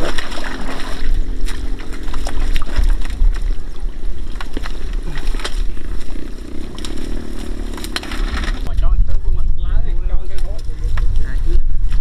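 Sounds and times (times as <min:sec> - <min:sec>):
mud and water sloshing: 0:00.0 - 0:08.7
tractor engine rumbling: 0:00.0 - 0:09.0.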